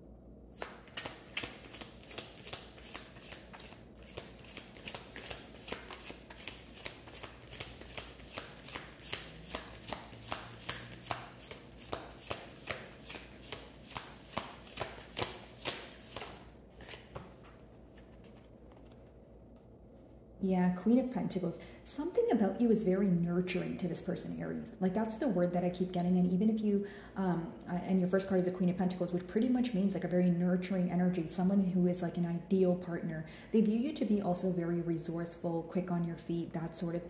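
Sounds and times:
cards being shuffled: 0.5s - 19.6s.

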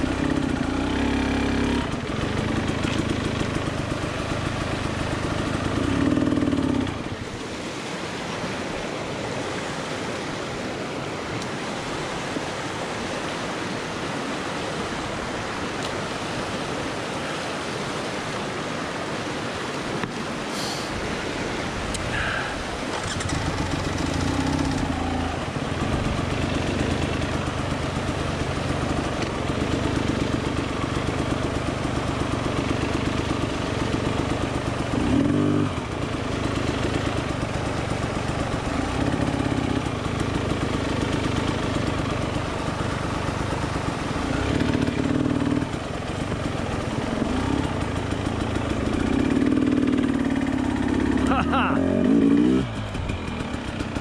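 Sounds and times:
dirt bike engine revving: 0.0s - 7.2s, 22.2s - 54.0s
rushing creek: 0.0s - 54.0s.

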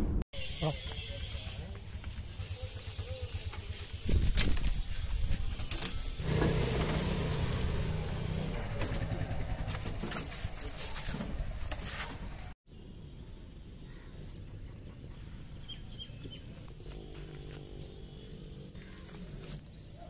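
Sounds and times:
auto-rickshaw engine idling: 1.0s - 5.0s, 5.6s - 10.6s
knocks and clanks of moped: 5.6s - 12.4s.

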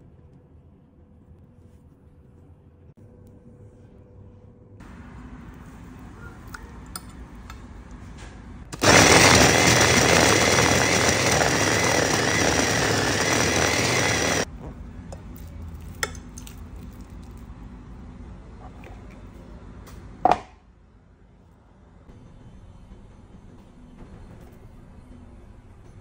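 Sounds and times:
electric food chopper running: 8.8s - 14.5s.

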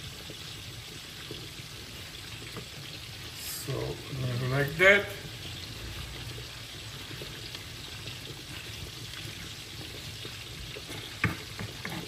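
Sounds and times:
meat sizzling in a pan: 0.0s - 12.0s
knock: 11.2s - 12.0s.

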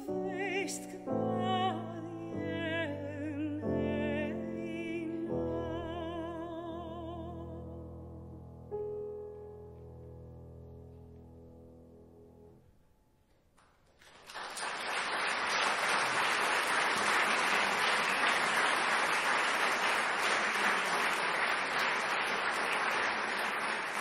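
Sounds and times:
audience applause: 14.0s - 24.0s.

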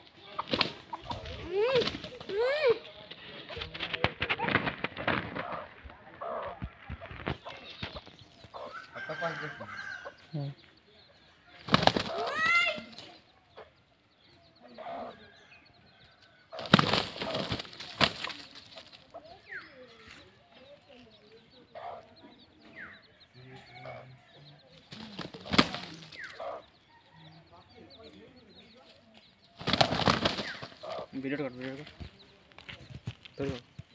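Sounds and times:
roosters flapping wings: 0.4s - 2.4s, 3.5s - 5.8s, 11.6s - 13.0s, 16.6s - 19.0s, 24.9s - 26.3s, 29.6s - 31.0s.

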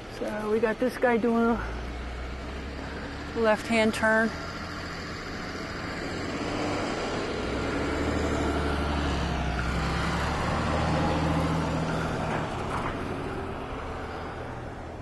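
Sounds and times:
truck driving past on snow: 0.8s - 15.0s.

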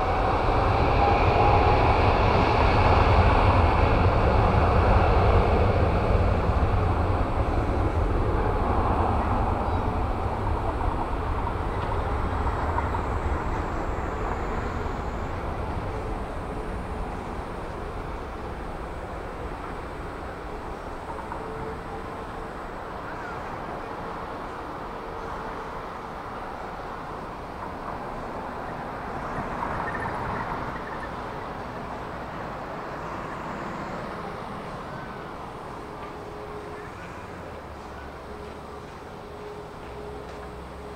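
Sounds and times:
jet engines rumbling at low power: 0.0s - 40.9s.

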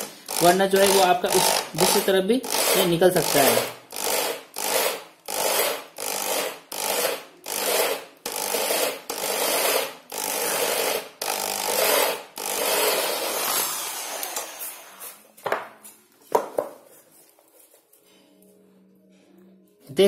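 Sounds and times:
electric drill boring into wood: 0.0s - 15.2s.

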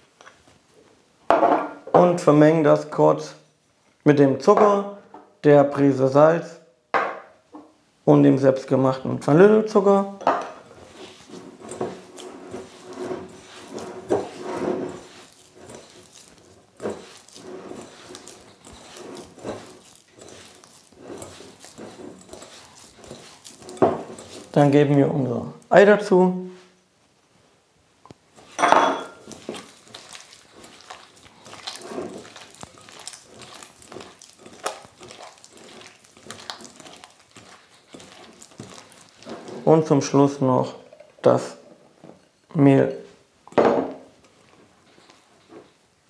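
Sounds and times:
hands kneading with soft squelching: 10.7s - 26.7s, 28.3s - 40.7s.

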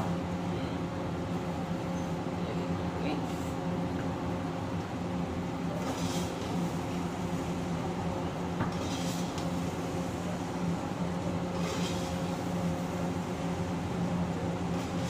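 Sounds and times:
metal spatula scraping wok: 11.6s - 12.2s.

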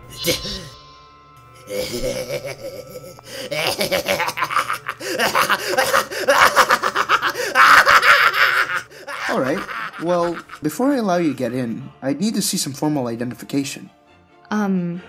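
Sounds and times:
man cackling laugh: 1.7s - 10.6s.

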